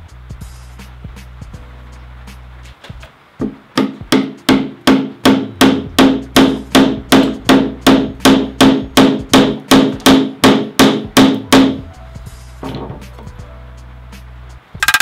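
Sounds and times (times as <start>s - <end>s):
hammer striking wooden stick: 3.4s - 11.8s, 14.8s - 15.0s.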